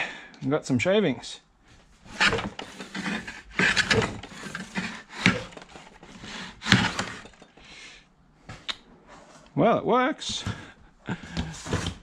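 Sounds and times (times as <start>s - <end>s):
hand plane scraping wood: 2.0s - 7.6s, 10.4s - 12.0s.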